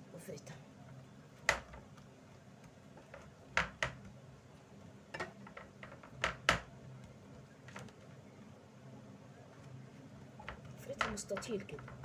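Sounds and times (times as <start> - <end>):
hands patting dough on plastic tray: 1.3 - 4.6, 5.2 - 8.1, 9.6 - 12.0.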